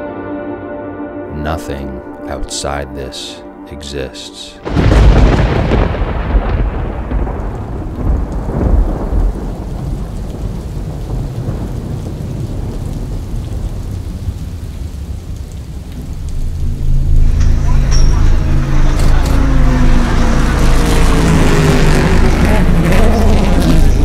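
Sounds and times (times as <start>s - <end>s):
rain hissing: 3.9s - 24.0s
thunder rumbling: 4.6s - 24.0s.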